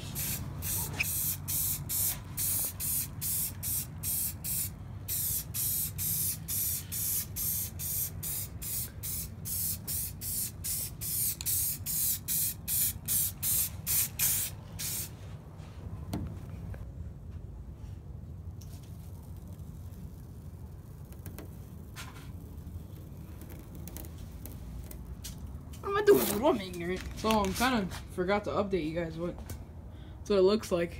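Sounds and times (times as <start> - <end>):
spray paint hissing in spurts: 0.0 - 15.2, 18.6 - 27.5.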